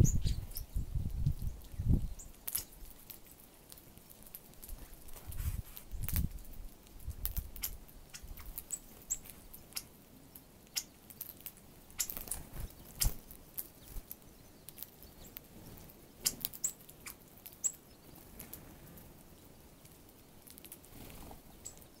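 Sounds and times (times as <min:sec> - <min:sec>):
birds pecking in seed: 0:00.1 - 0:22.0
wingbeats fluttering: 0:12.0 - 0:14.2, 0:20.6 - 0:22.0.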